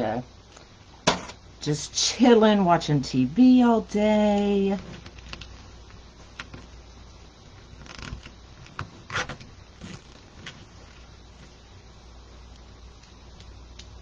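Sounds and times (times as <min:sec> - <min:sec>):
mesh rustling: 0:07.4 - 0:11.7.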